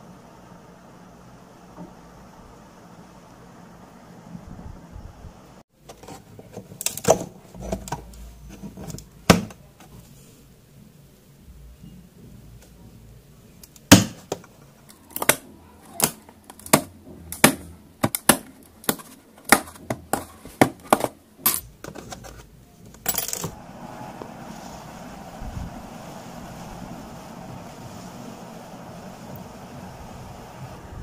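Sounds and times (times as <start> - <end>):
steady background hiss: 0.0 - 31.0
drill bits clinking in plastic tray: 23.0 - 23.6.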